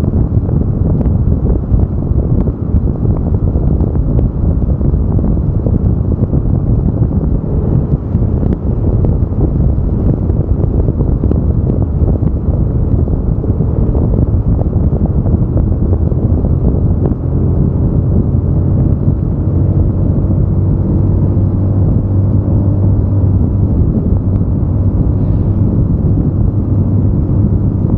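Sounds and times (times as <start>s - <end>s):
low engine hum: 0.0s - 27.9s
road rumble: 0.0s - 27.9s
wind rushing over microphone: 0.0s - 27.9s.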